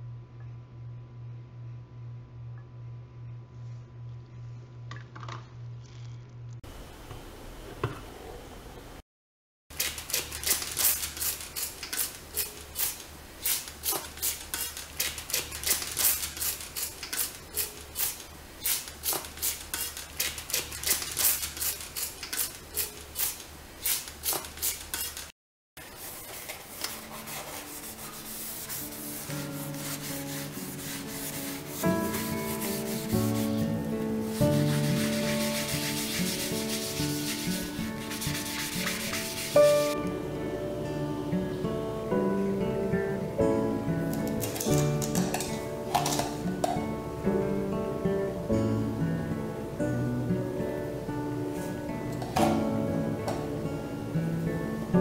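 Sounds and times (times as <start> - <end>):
spray bottle squirting: 9.8 - 25.3, 34.4 - 40.0, 44.2 - 46.4
cloth rubbing metal faucet: 10.2 - 33.8, 34.4 - 40.0
background music: 26.9 - 55.0.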